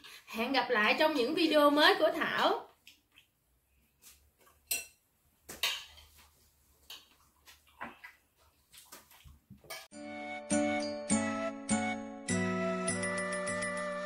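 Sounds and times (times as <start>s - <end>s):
chiming outro music: 10.0s - 14.0s.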